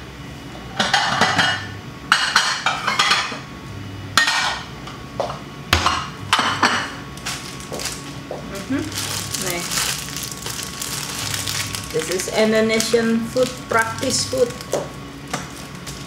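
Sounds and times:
dishes clinking and clattering: 0.7 - 3.4.

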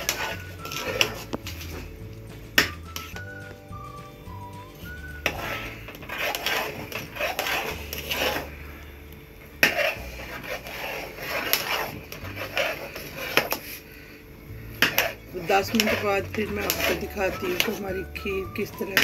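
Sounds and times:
metal spoon scraping a pot: 0.0 - 1.8, 5.1 - 8.8, 9.6 - 13.8, 14.7 - 19.0.

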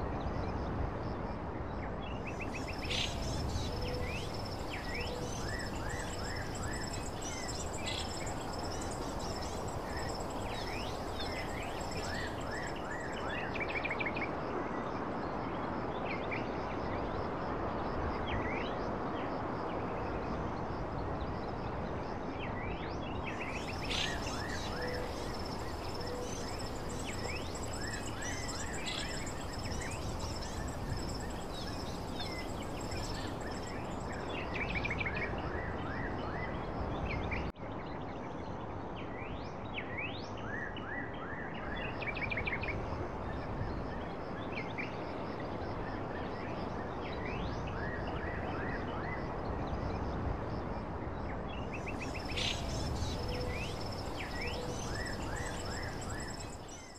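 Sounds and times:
birds chirping: 2.4 - 13.2, 23.4 - 34.3, 52.0 - 56.9.

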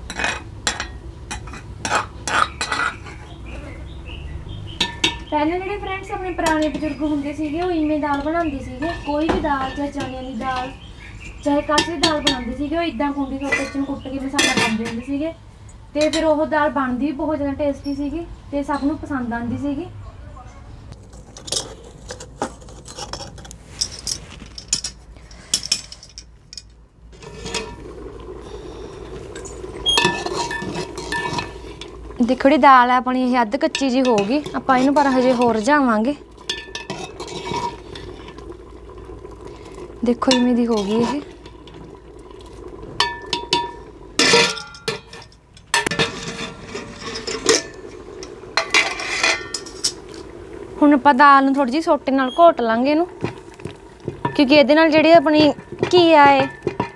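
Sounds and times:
ladle and lid clinking on pot: 0.0 - 3.3, 4.8 - 5.3, 6.4 - 10.8, 11.7 - 12.6, 13.4 - 15.0, 29.4 - 32.0, 33.6 - 38.4, 40.2 - 41.8, 43.0 - 50.2, 53.2 - 56.9
metal tongs clinking on firewood: 0.1 - 3.3, 4.8 - 5.3, 21.1 - 26.8, 29.4 - 32.0, 33.6 - 35.7, 36.3 - 38.1, 40.2 - 41.8, 43.0 - 50.1, 54.1 - 54.6, 55.4 - 56.9
steaming pot hiss: 27.1 - 56.9.

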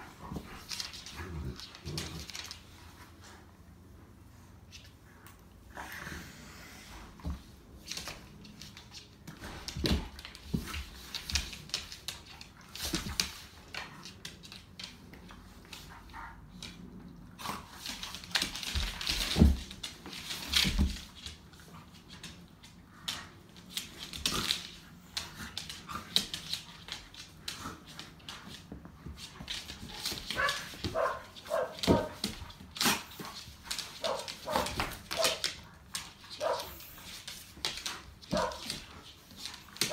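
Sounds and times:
scuffling on hardwood floor: 6.9 - 15.1, 23.0 - 39.9.

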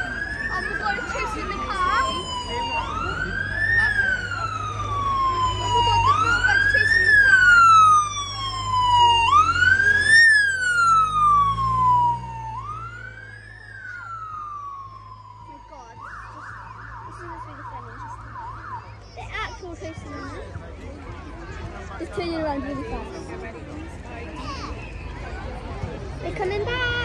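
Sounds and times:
siren fast yelp: 0.0 - 19.0
police siren wailing: 0.0 - 19.4.

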